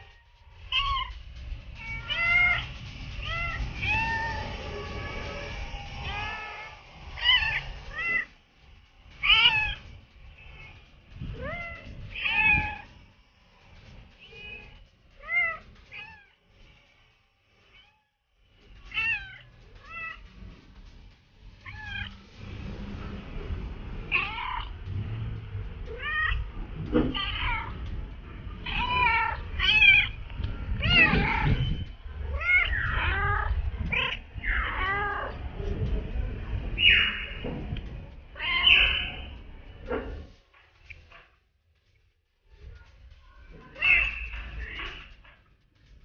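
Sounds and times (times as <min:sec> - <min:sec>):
cats meowing: 0:00.6 - 0:01.2, 0:01.8 - 0:08.3, 0:09.2 - 0:09.9, 0:11.3 - 0:12.9, 0:18.9 - 0:20.3, 0:24.1 - 0:24.8, 0:25.9 - 0:26.5, 0:27.1 - 0:27.8, 0:28.5 - 0:35.4, 0:36.8 - 0:39.4, 0:43.6 - 0:45.2.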